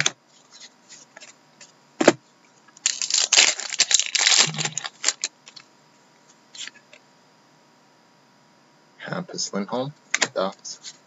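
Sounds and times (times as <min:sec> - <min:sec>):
cards crinkling rustle: 0:02.8 - 0:05.7.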